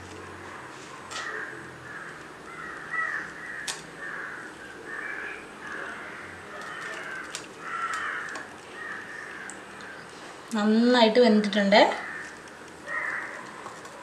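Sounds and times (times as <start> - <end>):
crows cawing: 1.1 - 10.2, 11.9 - 13.9.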